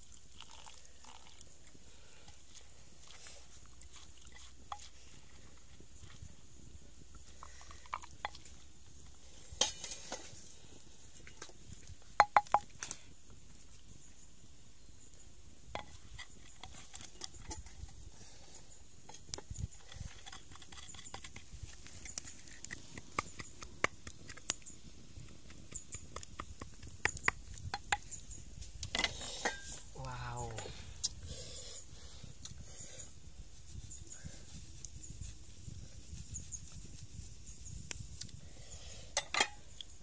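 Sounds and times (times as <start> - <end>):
pestle knocking in stone mortar: 12.2 - 12.7.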